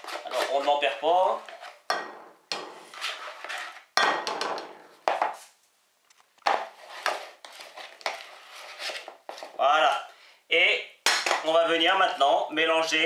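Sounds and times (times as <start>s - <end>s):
spatula scraping plastic bowl: 0.0s - 1.9s, 2.5s - 4.0s, 6.5s - 9.6s.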